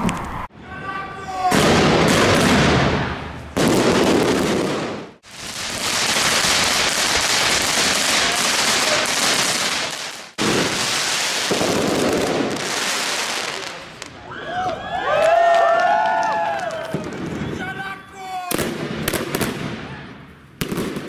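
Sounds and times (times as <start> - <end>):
fireworks hissing and crackling: 3.4 - 14.2.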